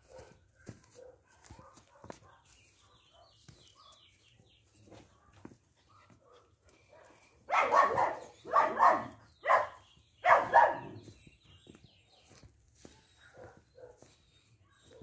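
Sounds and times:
dog barking harshly: 7.5 - 11.0.

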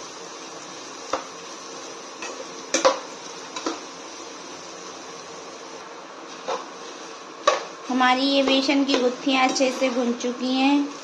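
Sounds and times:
dumplings frying in oil: 0.0 - 11.0
metal spoon scraping pan: 8.4 - 10.2.

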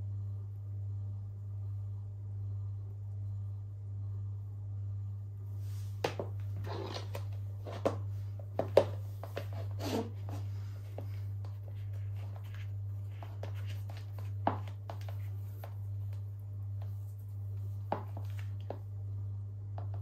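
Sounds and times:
steady low hum: 0.0 - 20.0
heels tapping on floor: 6.0 - 17.0, 17.6 - 18.9.

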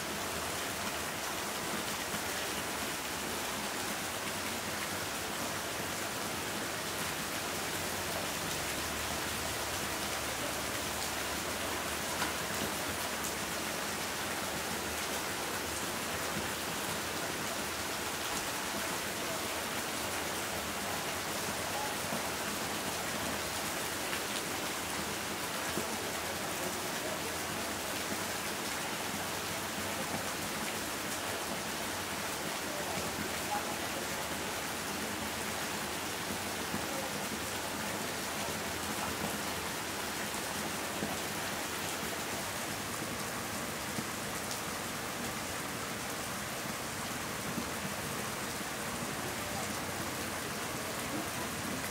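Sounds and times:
rain on leaves and water: 0.0 - 51.9.

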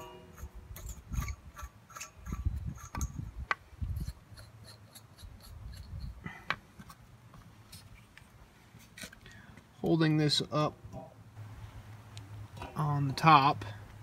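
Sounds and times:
metal nuts clicking and scraping: 0.0 - 7.0.

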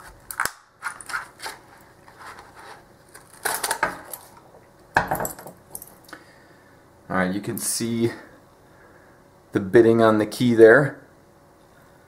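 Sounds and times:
cardboard rustling and scraping: 0.8 - 3.9.

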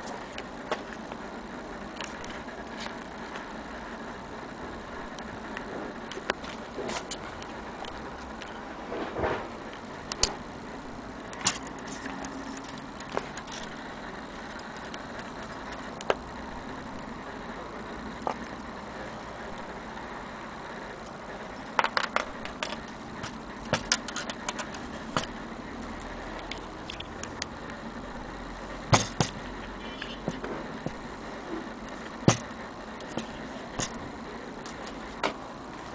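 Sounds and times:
clock parts clicking and knocking: 11.3 - 13.8, 21.7 - 25.4, 28.8 - 31.0, 31.9 - 35.4.

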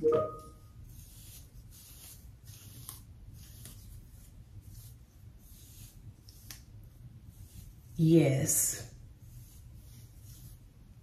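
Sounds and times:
short tonal sound: 0.0 - 0.6
fingers rustling through hair: 0.5 - 11.0.

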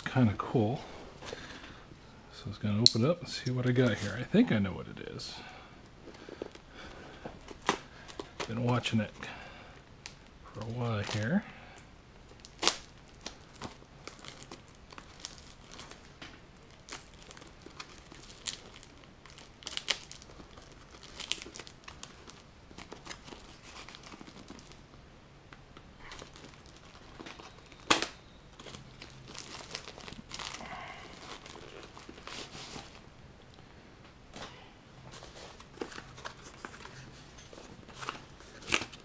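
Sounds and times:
plastic envelope crinkling and tearing: 7.4 - 9.3, 12.3 - 25.0, 26.0 - 33.0, 35.1 - 39.0
plastic packaging snapping: 11.8 - 24.8, 26.0 - 32.8, 37.9 - 39.0.

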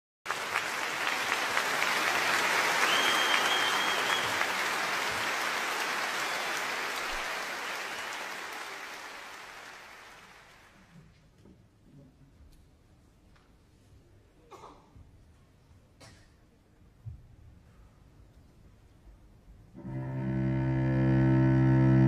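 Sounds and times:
audience applauding: 0.3 - 10.9
high whistle: 2.8 - 4.5.

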